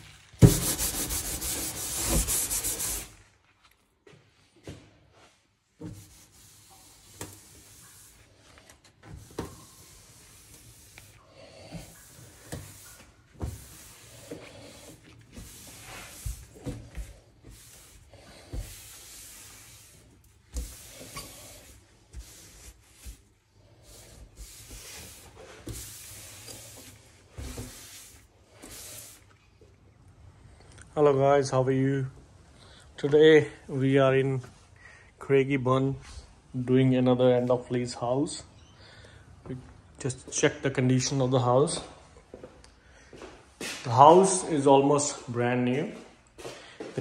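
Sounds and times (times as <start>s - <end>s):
rubbing: 0.4s - 3.4s, 9.0s - 29.3s.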